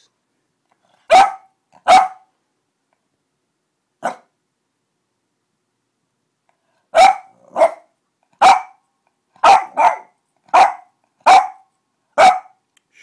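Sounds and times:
dog barking: 1.0s - 2.3s, 4.0s - 4.3s, 6.9s - 8.8s, 9.4s - 12.6s.

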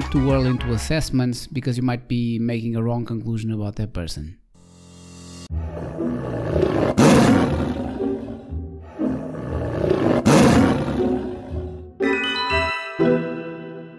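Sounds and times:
big cat roaring: 5.5s - 11.9s.

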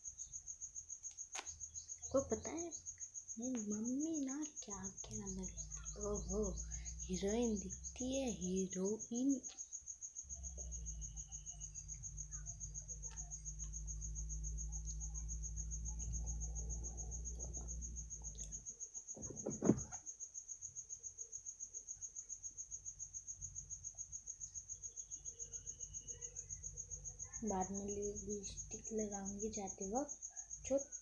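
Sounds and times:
insect trilling: 0.0s - 31.0s
sharp knock: 19.2s - 20.0s.

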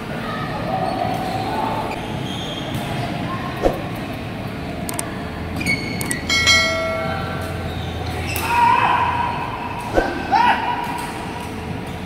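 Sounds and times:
clicks: 4.9s - 5.1s, 6.0s - 6.2s
bell-like chime: 6.3s - 7.6s
racket hitting shuttlecock: 9.8s - 11.6s.

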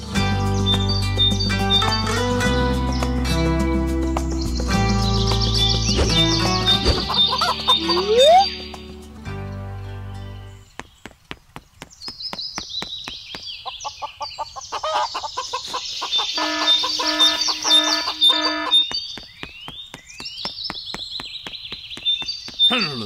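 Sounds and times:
chicks peeping: 5.2s - 8.7s, 13.0s - 19.5s
chicken clucking: 6.8s - 8.5s, 13.6s - 18.9s.

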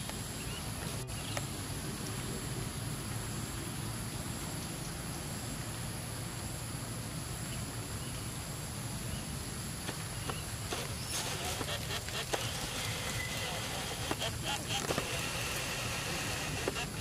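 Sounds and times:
faint high insect drone: 0.0s - 17.0s
steady hiss: 0.0s - 17.0s.

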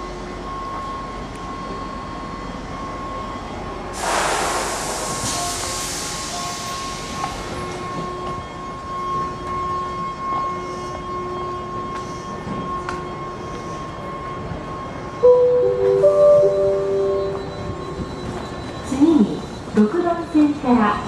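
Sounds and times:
train doors air hiss: 3.9s - 7.9s
steady high whine: 15.1s - 20.2s.

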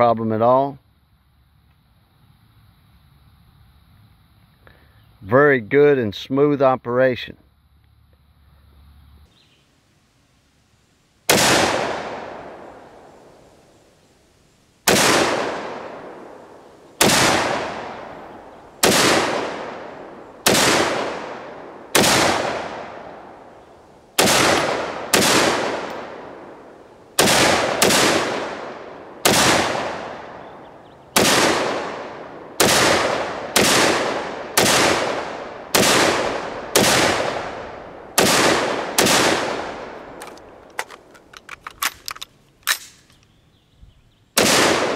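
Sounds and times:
rifle shots: 11.3s - 13.2s, 14.8s - 23.6s, 24.2s - 43.1s, 44.4s - 44.9s.

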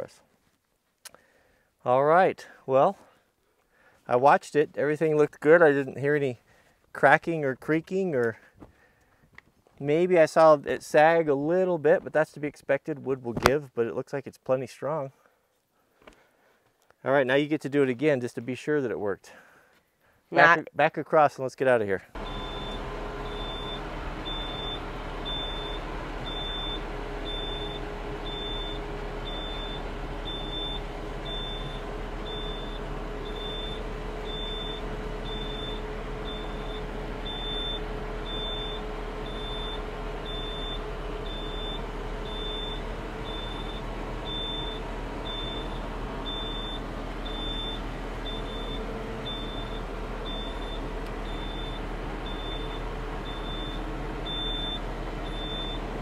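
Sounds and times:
reverse warning beeps: 22.2s - 55.9s
tractor engine running: 22.2s - 56.0s.

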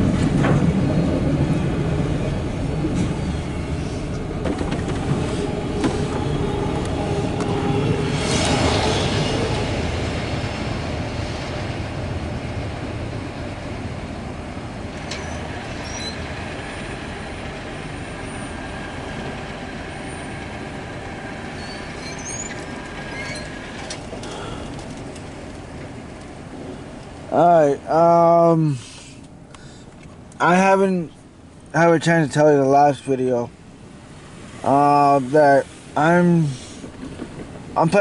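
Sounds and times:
freight train wheels rumbling: 0.0s - 38.0s
faint wheel squeaks: 15.1s - 16.9s, 21.5s - 25.1s.

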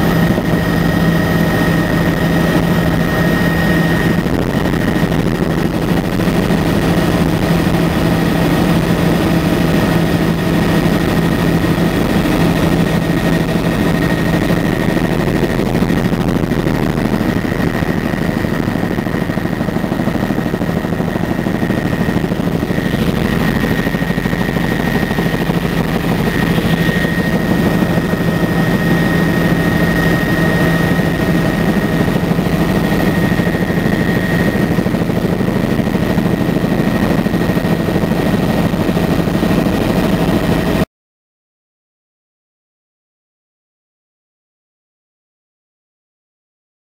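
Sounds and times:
high-pitched whine: 0.0s - 40.8s
helicopter engine and rotor drone: 0.0s - 40.9s.

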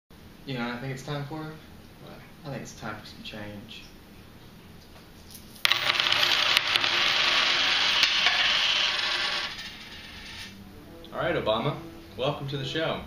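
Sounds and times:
coins jingling and clattering: 5.3s - 10.5s.

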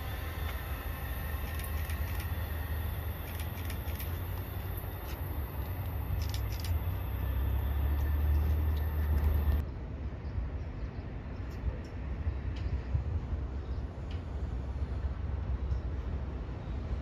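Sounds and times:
faint high whine: 0.0s - 9.6s
distant train rumble: 0.0s - 17.0s
quiet low hum: 0.0s - 17.0s.

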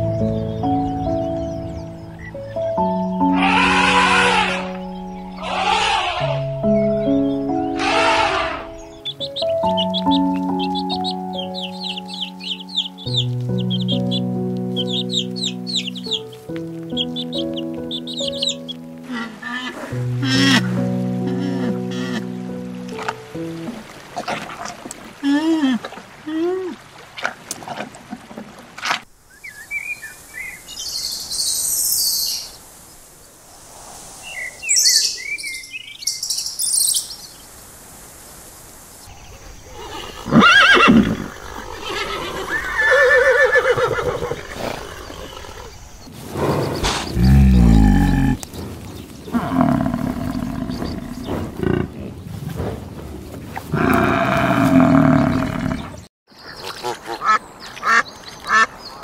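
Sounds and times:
small birds chirping: 0.0s - 20.6s, 29.3s - 37.6s, 38.9s - 59.0s
horses whinnying: 3.2s - 4.8s, 5.4s - 6.5s, 7.7s - 8.8s, 39.7s - 45.8s, 46.4s - 48.4s, 53.7s - 56.0s
water buffalo lowing: 3.2s - 6.8s, 7.6s - 28.2s, 39.8s - 56.1s.

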